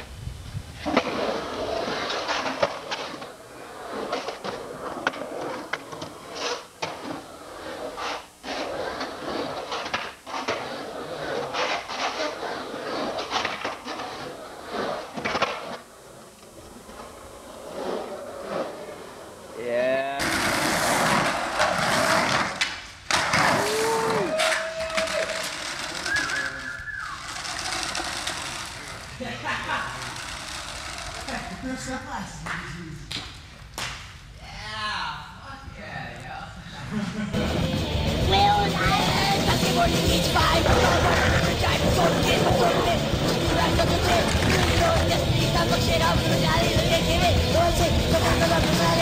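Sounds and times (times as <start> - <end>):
skateboard wheels rolling on concrete: 0.0 - 34.1, 37.0 - 49.0
skateboard clacks: 20.2 - 29.1, 38.6 - 49.0.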